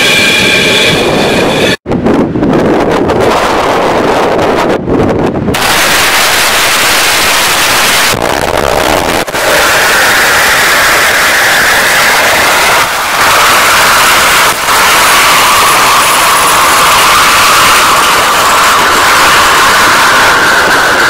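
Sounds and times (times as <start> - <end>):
rocket engine roaring: 0.0 - 21.0
steady hissing tone: 5.6 - 21.0.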